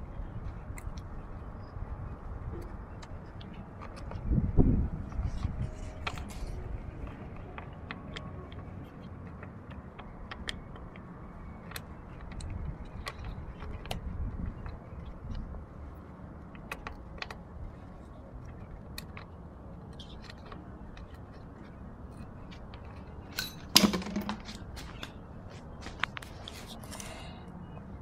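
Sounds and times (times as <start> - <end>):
small clicks and taps on plastic: 7.0 - 15.4.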